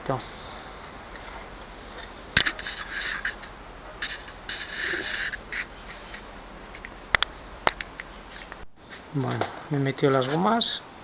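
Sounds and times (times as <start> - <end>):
paper rustling and scraping: 0.3 - 9.4
sharp clicks: 0.8 - 8.7.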